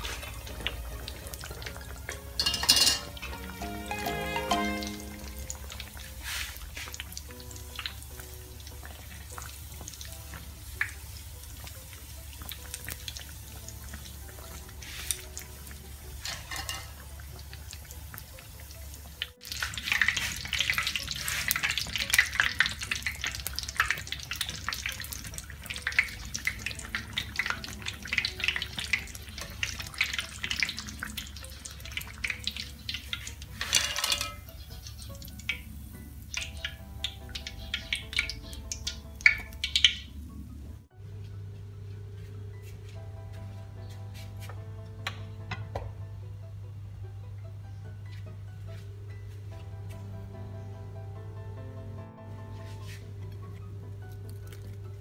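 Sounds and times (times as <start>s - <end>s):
dough sizzling in hot oil: 0.0s - 40.2s.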